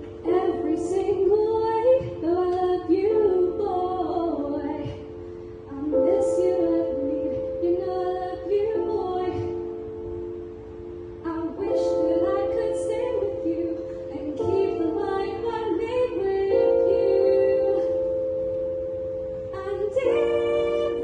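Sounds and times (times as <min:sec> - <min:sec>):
woman singing into a microphone: 0:00.0 - 0:10.0, 0:11.2 - 0:18.2, 0:19.4 - 0:21.0
piano chords: 0:00.0 - 0:21.0.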